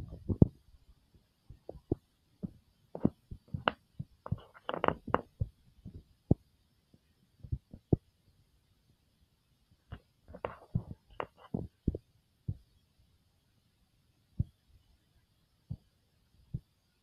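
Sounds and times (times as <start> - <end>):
tape rolls tapping and knocking: 0.0 - 0.6, 1.5 - 6.0, 9.9 - 12.0.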